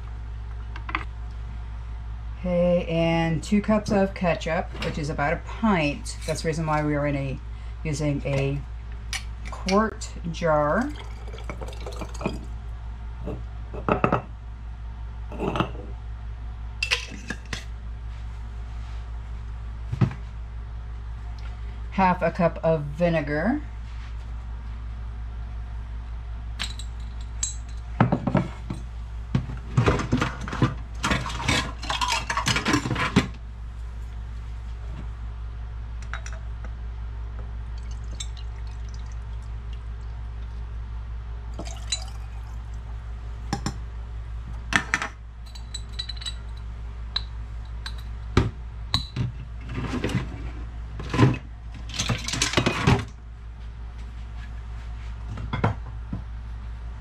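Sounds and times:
vinegar pouring through funnel: 10.8s - 12.5s, 37.8s - 40.6s, 41.5s - 43.0s
glass and kitchenware clinking: 11.0s - 12.5s, 41.6s - 42.3s.

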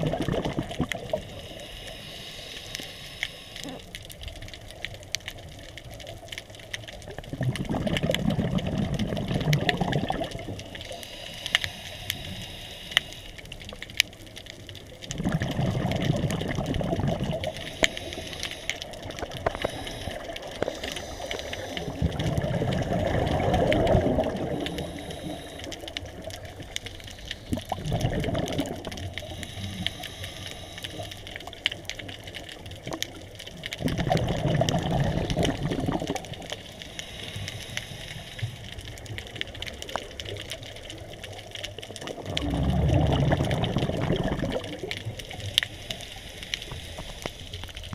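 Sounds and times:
bubbly underwater exhalations: 0.0s - 1.3s, 7.0s - 11.0s, 15.0s - 18.0s, 18.9s - 25.3s, 27.5s - 30.0s, 32.8s - 36.6s, 41.8s - 45.4s
regulator inhalation hiss: 1.3s - 3.8s, 10.8s - 13.5s, 17.5s - 22.0s, 24.5s - 25.9s, 29.2s - 31.3s, 36.6s - 38.7s, 45.4s - 47.6s.

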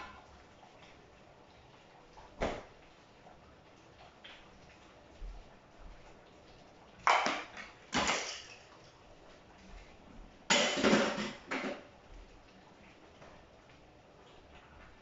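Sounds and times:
dishes clattering in sink: 7.0s - 8.7s, 10.5s - 11.9s.

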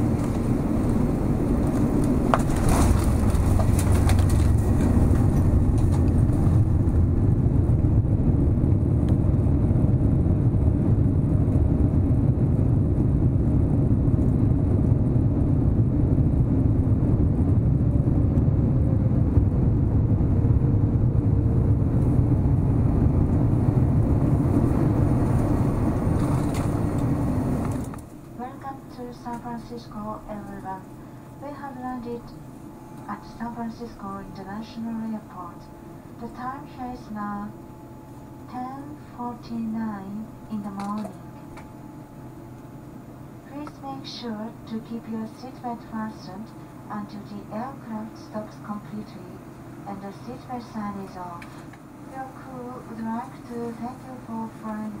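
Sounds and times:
aircraft engines and wheels rumbling: 0.0s - 55.0s
cabin rattling: 1.8s - 6.4s.

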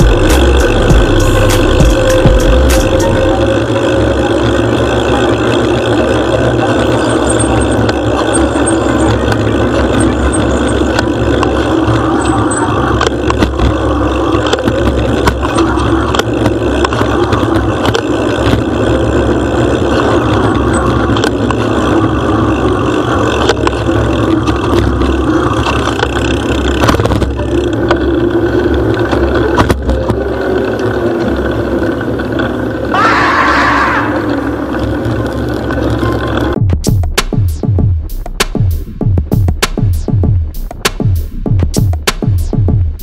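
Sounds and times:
knocks and rattles over bumps: 0.0s - 32.7s
road noise: 0.0s - 43.0s.

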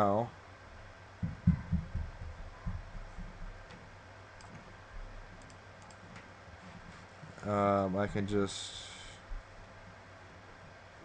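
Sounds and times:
computer mouse clicks: 4.4s - 4.6s, 5.4s - 6.3s.

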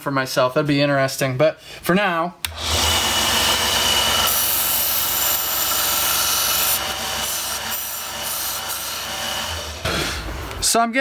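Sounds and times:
sander motor hum: 2.5s - 10.6s
steel grinding on sander belt: 2.6s - 10.3s.

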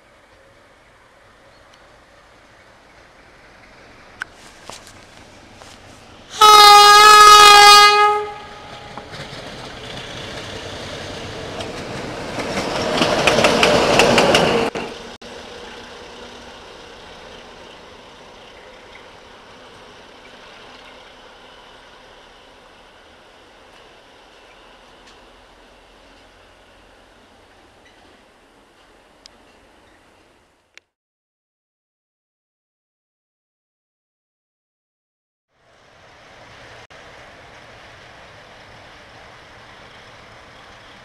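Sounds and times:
train engine and wheels on rails: 0.0s - 30.9s, 35.5s - 41.0s
locomotive horn: 6.4s - 9.0s.

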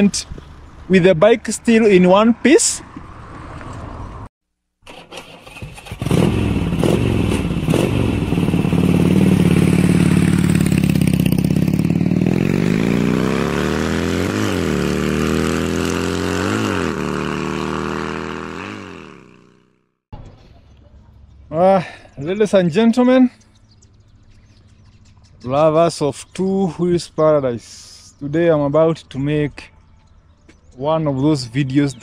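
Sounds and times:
motorcycle engine revving: 4.9s - 20.0s.

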